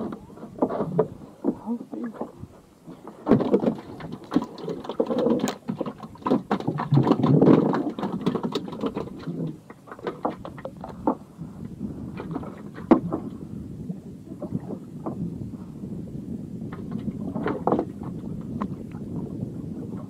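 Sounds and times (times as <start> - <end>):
knocks and clicks on boat: 0.0 - 11.3, 12.2 - 13.3, 16.6 - 19.2
waves slapping wooden hull: 0.0 - 20.0.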